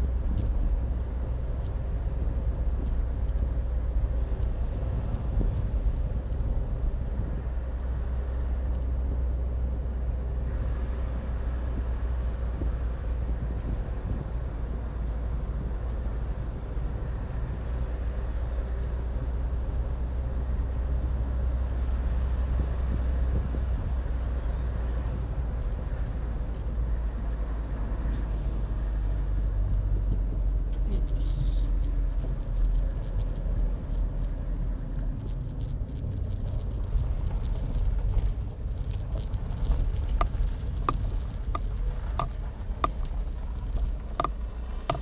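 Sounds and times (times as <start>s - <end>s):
car engine and tyre rumble: 0.0s - 45.0s.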